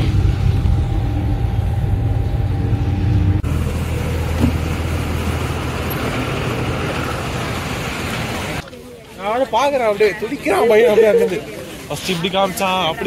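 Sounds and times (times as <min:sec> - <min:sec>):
vehicle engine hum: 0:00.0 - 0:09.3
road noise: 0:00.0 - 0:13.0.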